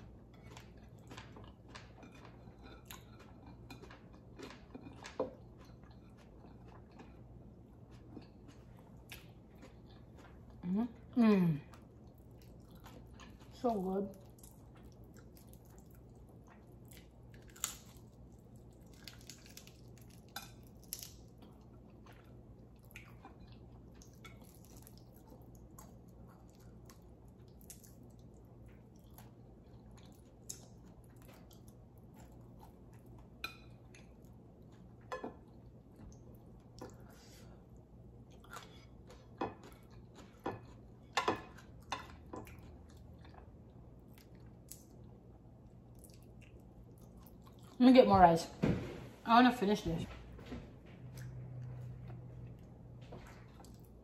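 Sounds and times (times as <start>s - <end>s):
soft chewing: 0.0s - 47.8s, 50.1s - 54.0s.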